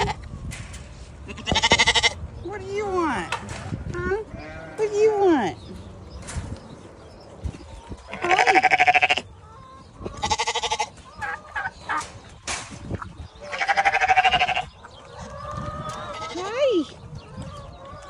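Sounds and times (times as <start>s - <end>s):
sheep bleating: 8.1s - 9.2s, 10.2s - 10.9s, 13.4s - 14.7s.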